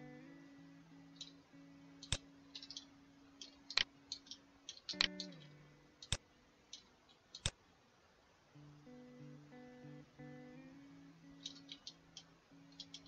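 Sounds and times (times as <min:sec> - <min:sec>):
mouse and keyboard clicks: 0:02.0 - 0:07.6, 0:11.4 - 0:13.0.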